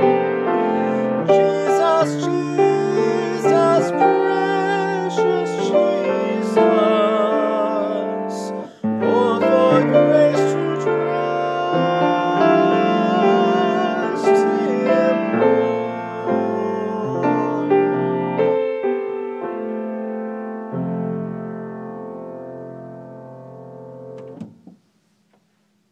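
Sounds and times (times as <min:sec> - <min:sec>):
man singing with vibrato: 0:00.0 - 0:18.5
piano playing slow chords: 0:00.0 - 0:24.8.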